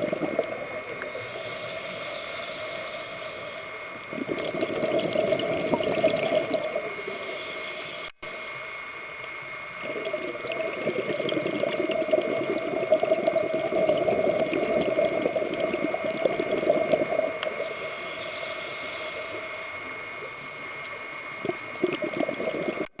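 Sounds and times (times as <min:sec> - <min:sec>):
underwater bubbles gurgling: 0:00.0 - 0:07.9, 0:09.1 - 0:23.0
thin steady high tone: 0:17.3 - 0:21.4.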